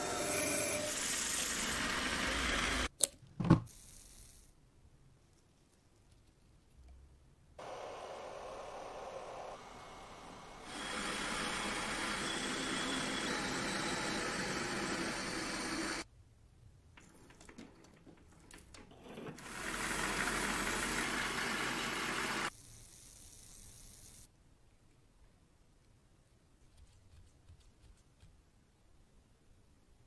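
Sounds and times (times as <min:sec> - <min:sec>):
lathe spinning: 0:00.0 - 0:02.9, 0:07.6 - 0:16.0, 0:18.9 - 0:22.5
induction heater whine: 0:07.6 - 0:16.0.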